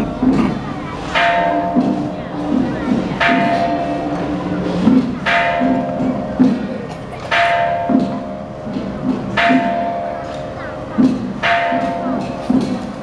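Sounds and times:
metal gong ringing: 0:03.2 - 0:06.5.

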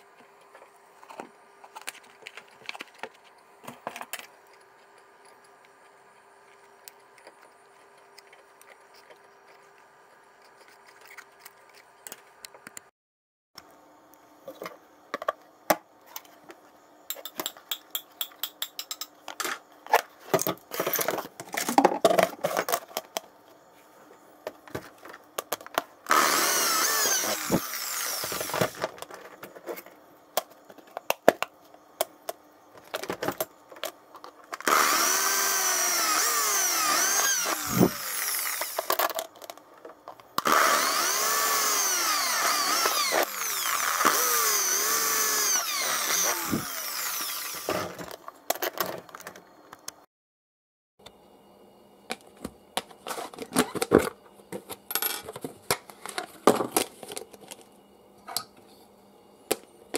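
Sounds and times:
power drill whining through plastic: 0:26.1 - 0:29.1, 0:34.6 - 0:39.0, 0:40.4 - 0:48.1.

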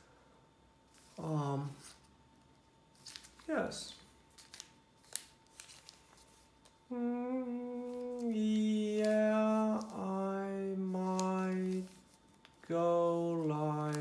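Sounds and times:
person humming a slow tune: 0:06.8 - 0:12.0, 0:12.6 - 0:14.0.

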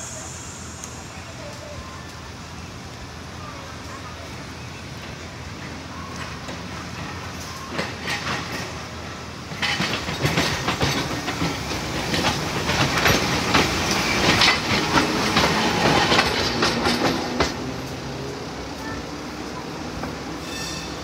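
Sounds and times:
streetcar rolling past: 0:00.0 - 0:21.0.

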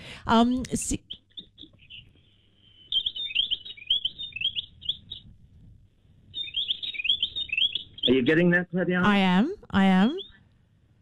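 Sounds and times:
songbird chirping: 0:00.3 - 0:05.6, 0:06.2 - 0:10.4.

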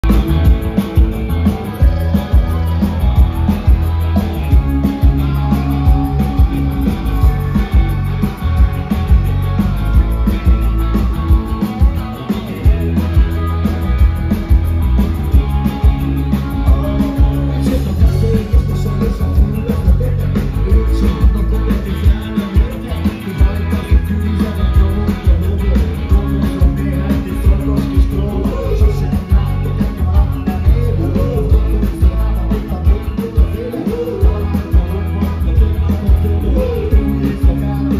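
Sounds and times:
bass guitar: 0:00.0 - 0:37.9
drum kit beat: 0:00.0 - 0:37.9
electric guitar: 0:00.0 - 0:37.9.

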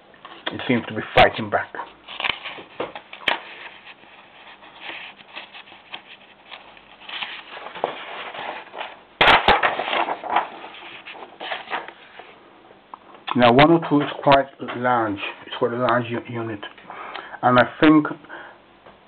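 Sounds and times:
paper pages turning in ring binder: 0:00.4 - 0:12.0.

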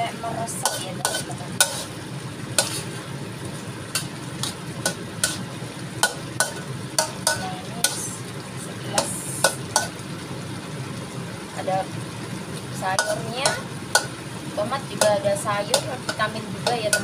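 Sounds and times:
steady sizzle: 0:00.0 - 0:17.0
spatula clinking against a wok: 0:00.6 - 0:01.9, 0:03.9 - 0:05.4, 0:06.0 - 0:08.0, 0:09.0 - 0:10.0, 0:13.0 - 0:14.2, 0:15.0 - 0:17.0.

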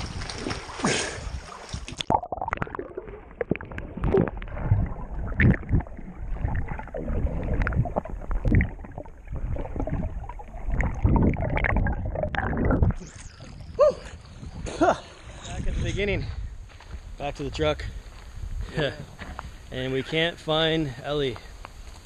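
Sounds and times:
dull thumps underwater: 0:00.0 - 0:13.6
water splashing: 0:00.0 - 0:15.7
underwater gurgling and sloshing: 0:00.0 - 0:16.0.

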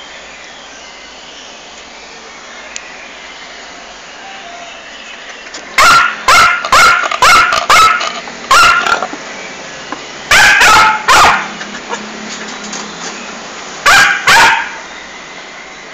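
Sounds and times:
small dog yapping: 0:05.8 - 0:09.0, 0:10.3 - 0:12.0, 0:13.9 - 0:14.8.

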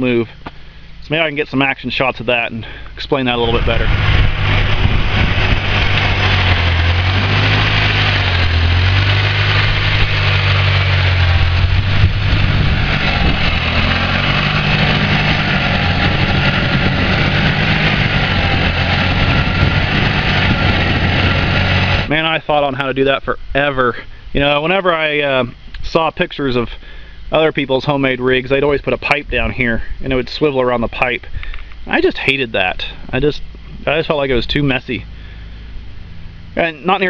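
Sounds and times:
tractor engine running: 0:00.0 - 0:29.6.

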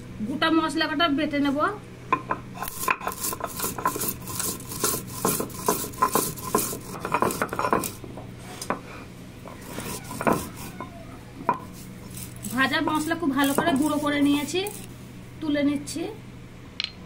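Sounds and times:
stone roller grinding seeds: 0:02.6 - 0:08.8, 0:09.4 - 0:15.0.

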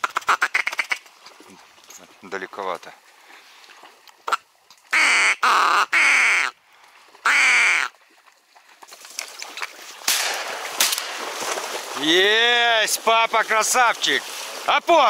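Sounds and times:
raspy duck quacks: 0:00.0 - 0:01.0, 0:04.3 - 0:06.6, 0:07.2 - 0:07.9.

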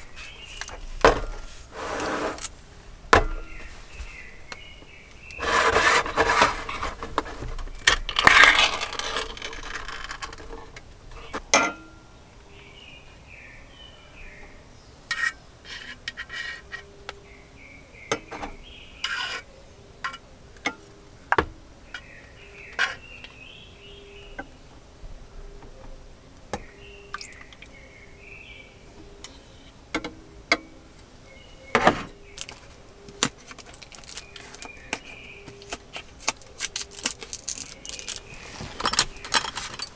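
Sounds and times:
can lid peeling scrape: 0:05.3 - 0:07.5.

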